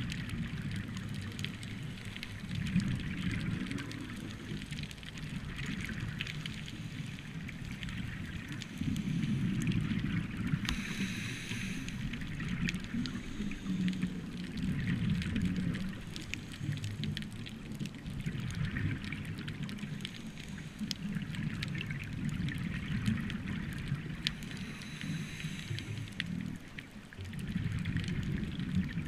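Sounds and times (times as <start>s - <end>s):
faint clicks and crackles: 0.0s - 29.0s
underwater diver breathing bubbles: 5.6s - 17.3s, 19.8s - 26.7s.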